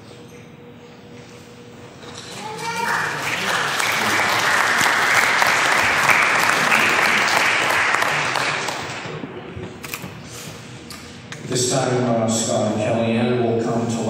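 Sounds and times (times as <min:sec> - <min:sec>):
congregation applauding: 0:02.3 - 0:09.2.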